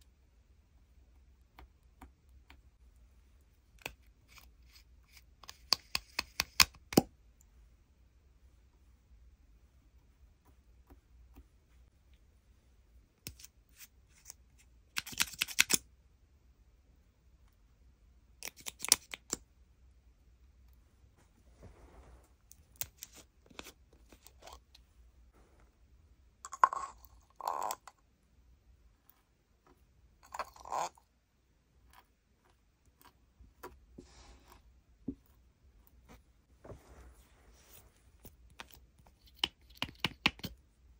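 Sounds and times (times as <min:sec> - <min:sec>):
makeup containers clicking and scraping: 0:03.8 - 0:07.0, 0:13.3 - 0:15.8, 0:22.5 - 0:24.8, 0:26.5 - 0:28.0, 0:38.2 - 0:40.6.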